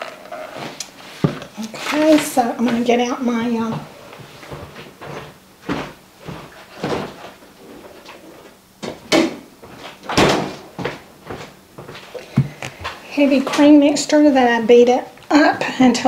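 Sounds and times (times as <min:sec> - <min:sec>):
footsteps: 0:00.5 - 0:13.8
refrigerator door opening and shutting: 0:10.0 - 0:10.7.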